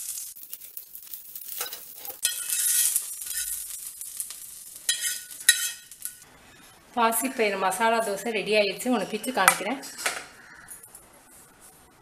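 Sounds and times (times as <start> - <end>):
seeds sizzling in hot oil: 0.0 - 7.8
metal spatula scraping pan: 1.6 - 3.7, 4.9 - 6.2.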